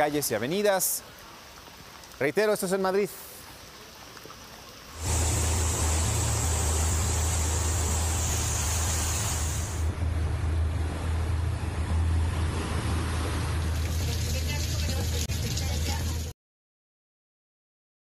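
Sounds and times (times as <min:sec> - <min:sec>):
floodwater rushing: 0:00.0 - 0:16.3
storm noise: 0:05.0 - 0:10.7
heavy low rumble: 0:05.0 - 0:14.0.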